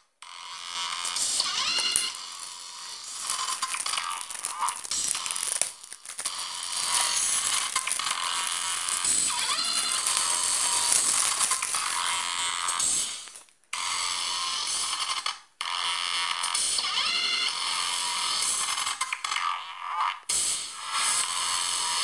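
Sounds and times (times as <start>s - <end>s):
shrink wrap crinkling: 1.0s - 13.7s.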